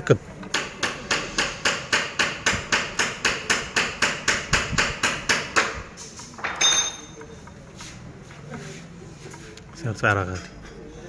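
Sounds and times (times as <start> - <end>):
rapid hammering knocks: 0.4 - 5.8.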